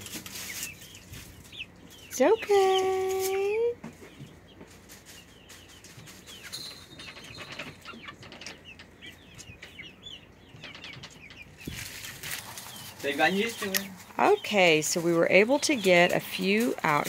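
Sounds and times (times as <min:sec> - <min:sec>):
chickens peeping: 0:00.0 - 0:17.0
rustling: 0:10.6 - 0:17.0.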